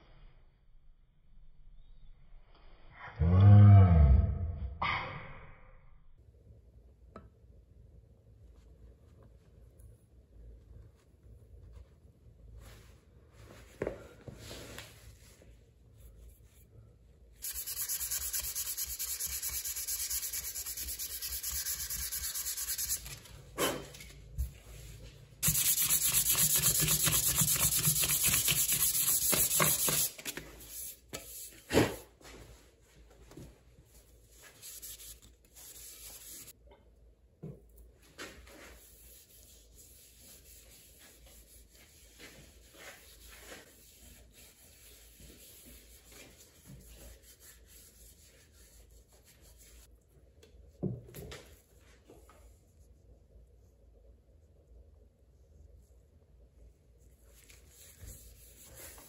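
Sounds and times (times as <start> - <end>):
hand sanding wood: 17.4 - 23.2, 25.4 - 31.6, 34.5 - 36.5, 38.7 - 49.9, 57.7 - 59.0.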